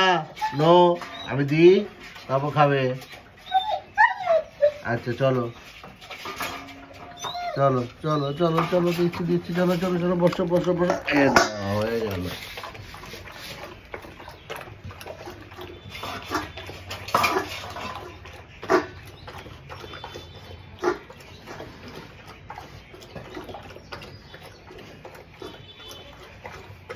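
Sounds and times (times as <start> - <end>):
kibble clinking on metal bowl: 0.0 - 4.0, 4.8 - 26.9
dog crunching dry kibble: 5.4 - 26.9.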